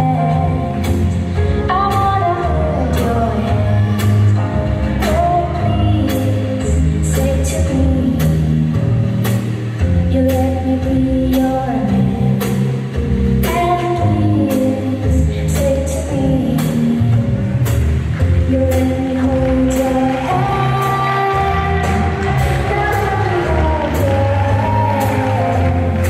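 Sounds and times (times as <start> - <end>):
foxtrot dance music: 17.2 - 26.0
person singing: 18.4 - 26.0.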